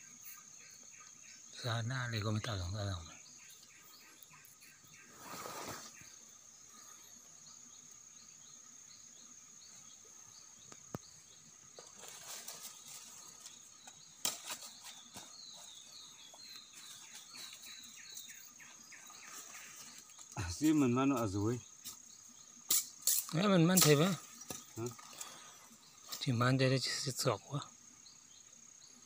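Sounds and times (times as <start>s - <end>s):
high insect drone: 0.0s - 29.0s
rustling dry leaves: 11.8s - 18.1s.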